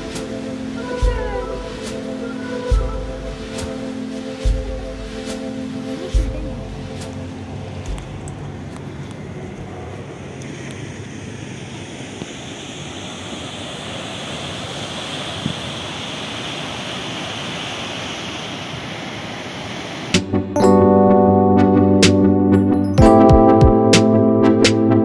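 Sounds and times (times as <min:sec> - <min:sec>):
keyboard music: 0:00.0 - 0:09.1, 0:20.2 - 0:25.0
ocean waves breaking: 0:00.0 - 0:20.8.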